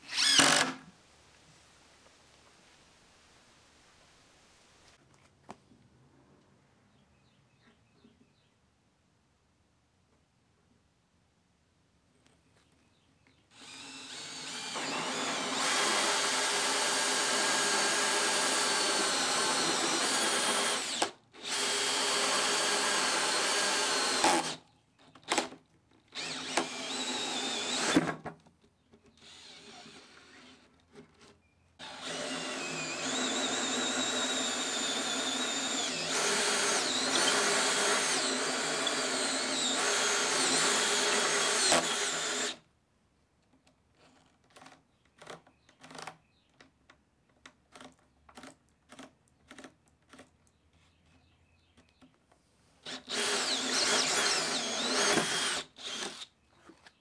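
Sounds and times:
drill cutting through plywood: 0.0s - 0.8s, 13.6s - 24.6s, 26.1s - 28.1s, 29.2s - 30.7s, 31.8s - 42.6s, 52.8s - 56.3s.

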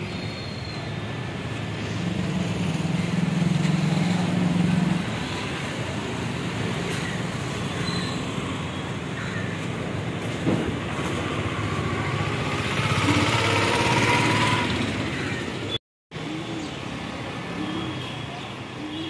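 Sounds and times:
vehicle engine humming: 9.2s - 15.7s.

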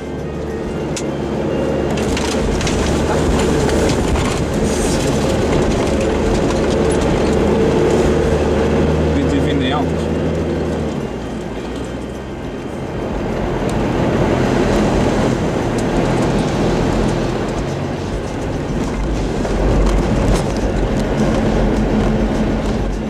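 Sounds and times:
engine and tyres rumbling: 0.0s - 23.0s
knocks and rattles: 1.9s - 8.2s, 15.8s - 23.0s.

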